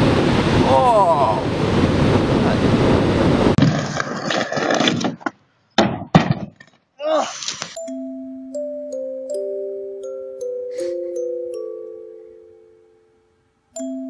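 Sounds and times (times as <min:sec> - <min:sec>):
wind on microphone: 0:00.0 - 0:03.6
skateboard scraping: 0:03.6 - 0:05.4
person falling on skate ramp: 0:03.6 - 0:07.8
glockenspiel-like music: 0:07.8 - 0:14.0.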